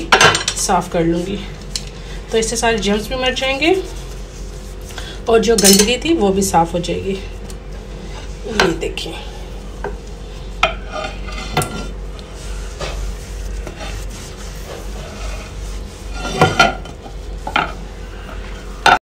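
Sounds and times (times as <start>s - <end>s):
sponge wiping wet glass plate: 2.2s - 5.0s, 12.3s - 18.8s.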